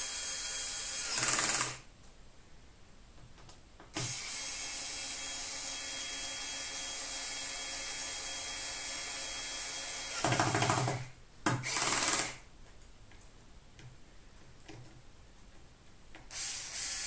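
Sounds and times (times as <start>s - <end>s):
cordless screwdriver running: 0.0s - 1.8s, 16.3s - 17.0s.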